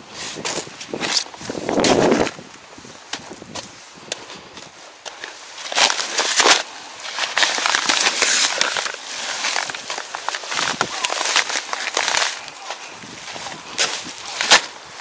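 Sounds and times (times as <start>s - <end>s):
sacks crinkling and rustling: 4.4s - 15.0s.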